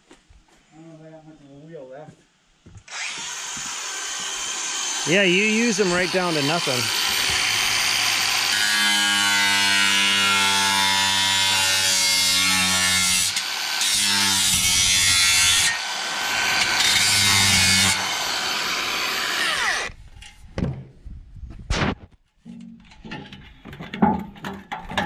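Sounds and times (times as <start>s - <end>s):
angle grinder cutting metal: 2.9s - 19.9s.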